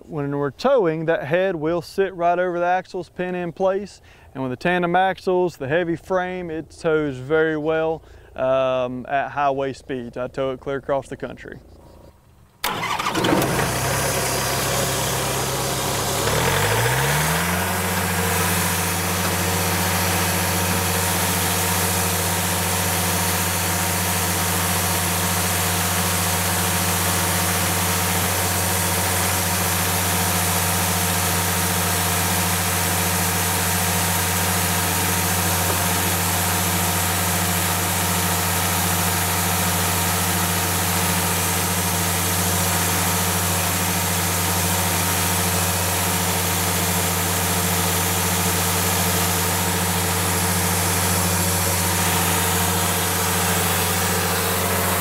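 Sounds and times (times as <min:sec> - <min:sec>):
diesel engine running: 0:12.6 - 0:55.0.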